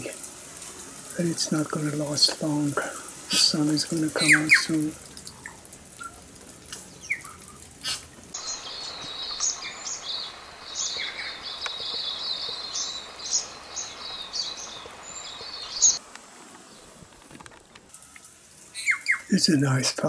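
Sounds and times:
birds chirping: 3.3s - 5.6s, 8.4s - 19.3s.

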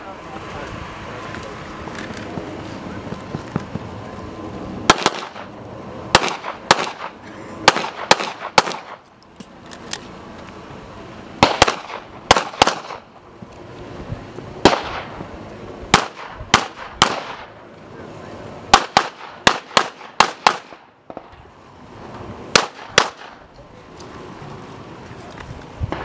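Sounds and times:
pistol shots with echo: 4.9s - 5.5s, 6.1s - 9.0s, 11.4s - 13.1s, 14.6s - 15.2s, 15.9s - 17.5s, 18.7s - 21.3s, 22.5s - 23.4s.

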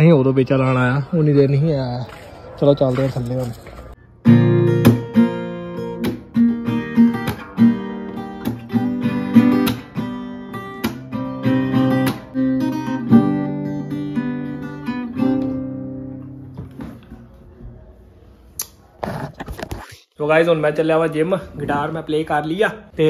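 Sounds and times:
acoustic guitar plucked: 4.2s - 17.0s.

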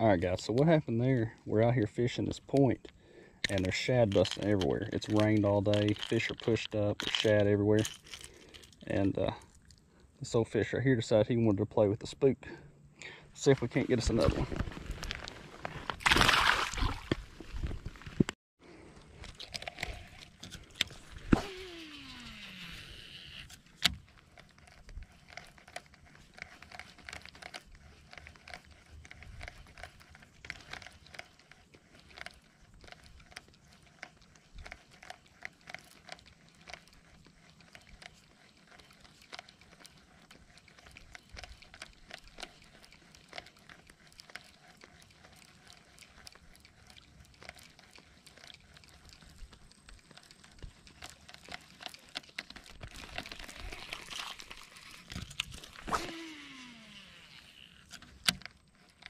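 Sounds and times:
fishing reel click: 3.4s - 8.8s, 19.3s - 59.0s
reel cranking clicks: 3.4s - 9.0s, 19.3s - 59.0s
reel spool whine: 19.6s - 59.0s.

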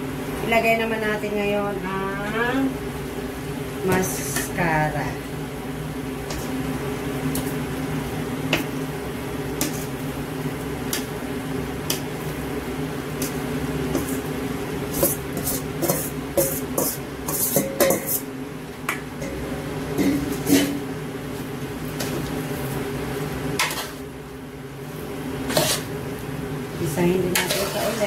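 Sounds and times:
steady low hum: 0.0s - 28.0s
metal spoon clinking on metal pot: 17.5s - 18.1s.

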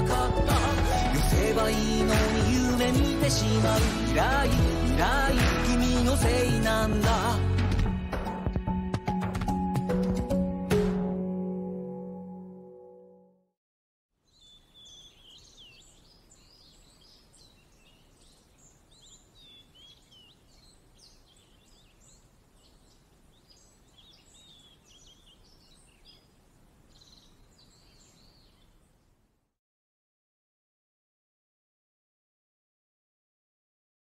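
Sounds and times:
music: 0.0s - 13.5s
low steady hiss: 14.2s - 29.6s
birds chirping and twittering: 14.3s - 29.2s.

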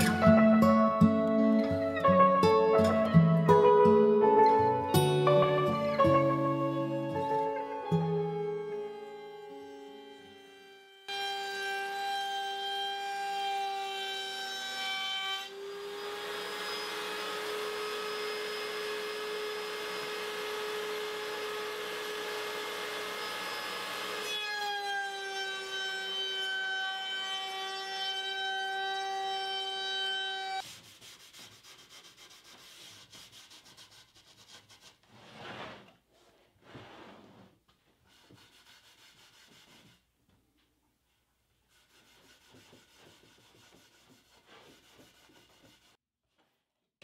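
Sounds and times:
table saw whining: 5.8s - 30.6s
saw blade cutting wood: 9.2s - 35.0s, 41.7s - 46.0s
cloth rubbing on board: 30.6s - 40.0s.

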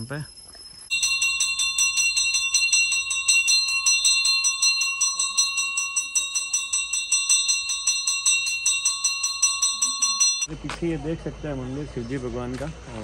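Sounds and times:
metal bell struck rapidly: 0.9s - 10.5s.

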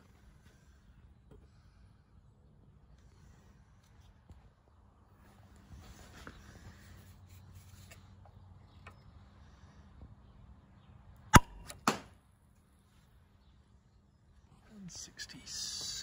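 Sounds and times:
launcher firing pop: 11.4s - 12.2s.

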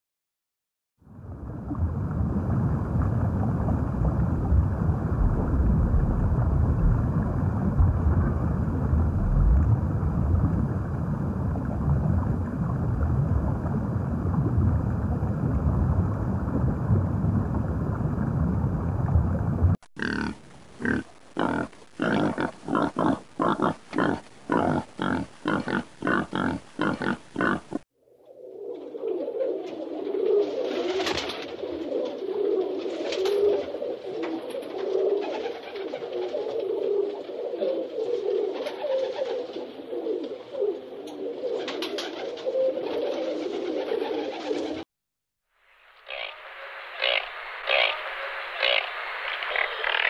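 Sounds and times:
underwater rumble and hiss: 1.0s - 19.8s
pigs grunting: 20.0s - 27.8s.

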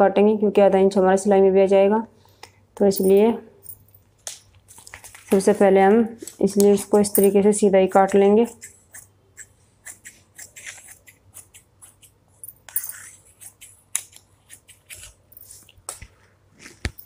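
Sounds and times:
shears snipping fabric: 13.1s - 16.0s.

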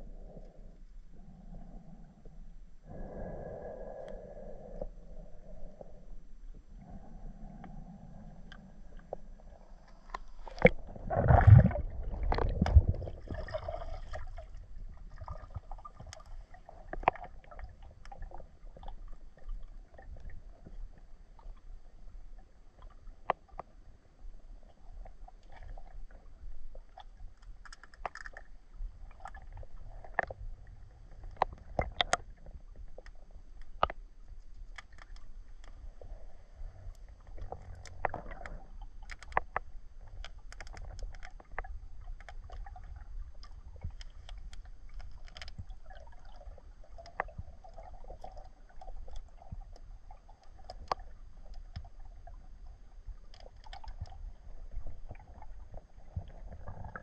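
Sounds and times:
underwater rumble of moving water: 0.0s - 57.0s.

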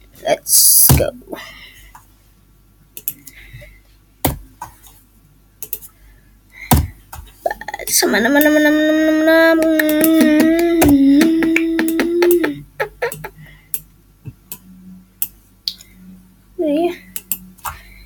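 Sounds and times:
boy singing a held note: 8.0s - 12.6s
keyboard and mouse clicks: 17.2s - 17.8s.

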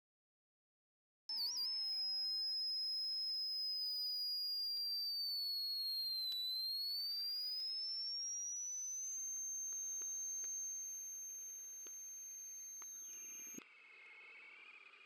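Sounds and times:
high electronic tone gliding upward: 1.3s - 13.6s
faint wavering tones: 6.2s - 15.0s
faint clicks: 8.2s - 13.6s.

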